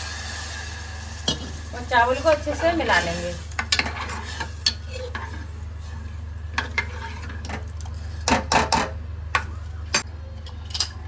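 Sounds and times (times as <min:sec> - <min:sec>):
ladle scraping and clinking pot: 0:03.0 - 0:09.5.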